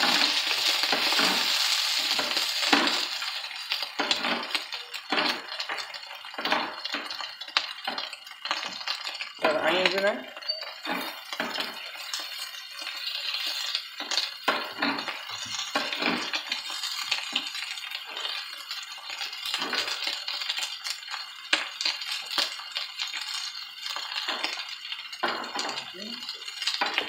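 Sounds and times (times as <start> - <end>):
small pops and crackles: 0.0 - 10.1, 10.7 - 27.0
food sizzling in a pan: 0.0 - 27.0.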